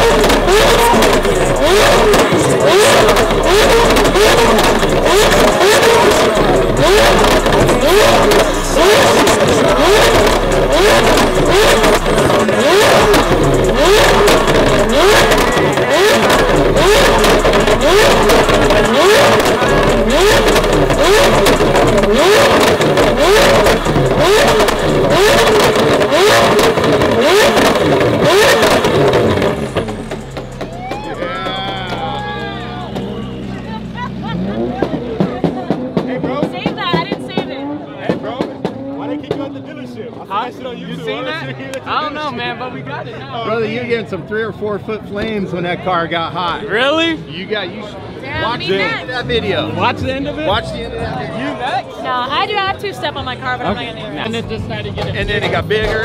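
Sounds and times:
exhaust crackling and popping: 0.0 - 39.8, 54.2 - 56.0
car engine revving: 0.0 - 42.2, 53.1 - 56.0.

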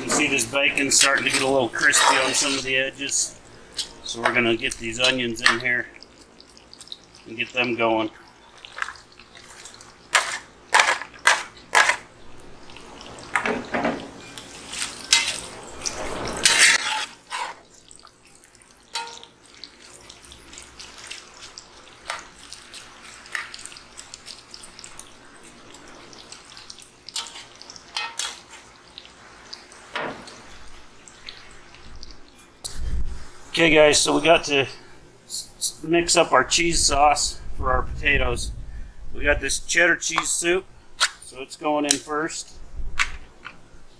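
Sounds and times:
spatula scraping cast iron: 0.0 - 2.8, 9.5 - 12.1, 14.2 - 17.7, 18.9 - 19.3, 27.2 - 28.7
bacon fat sizzling and popping: 0.3 - 32.8
scraping onions off a plate: 14.3 - 17.8.

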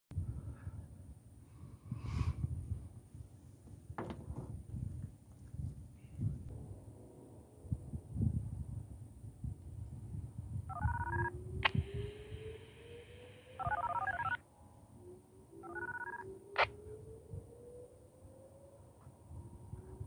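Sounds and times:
low wind rumble: 0.1 - 20.0
distant warning siren whooping: 10.9 - 20.0
radio hiss: 11.7 - 13.6.

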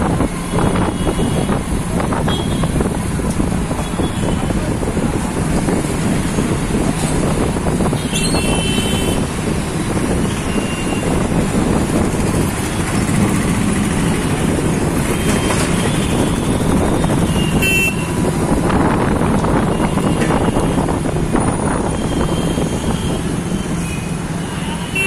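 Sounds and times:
auto-rickshaw engine: 0.0 - 25.0
traffic: 0.0 - 25.0
vehicle horn: 8.0 - 9.2, 17.3 - 18.1, 24.7 - 25.0.

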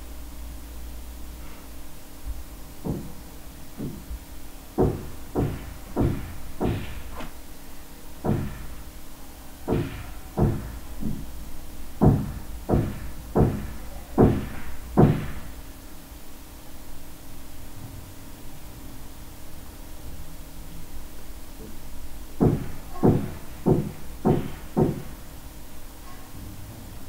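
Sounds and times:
low steady hum: 0.0 - 27.0
dull knocks: 2.3 - 3.2, 3.8 - 4.2, 4.8 - 7.3, 8.2 - 8.8, 9.7 - 11.4, 12.0 - 15.6, 22.4 - 25.2.

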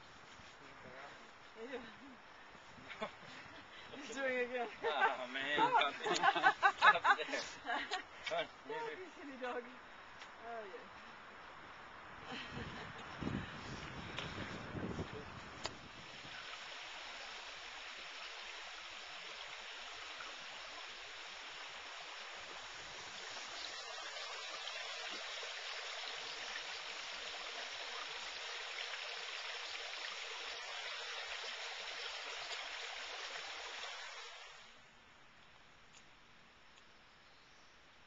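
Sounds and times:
brook water trickling over rocks: 13.8 - 34.8.

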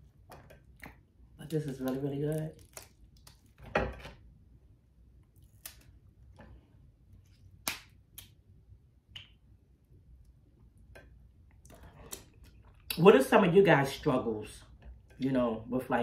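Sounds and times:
crab shells snapping: 0.8 - 3.6, 5.4 - 5.9, 7.6 - 8.4.

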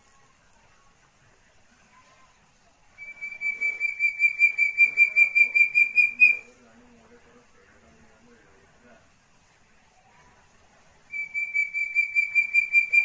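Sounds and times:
partridge whistled calls: 3.0 - 6.5, 11.1 - 13.0.

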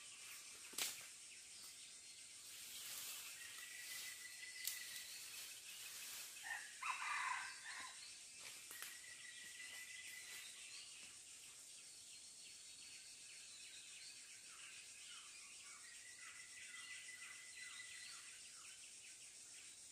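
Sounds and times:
high insect drone: 0.0 - 19.9
junglefowl call: 6.4 - 8.0.

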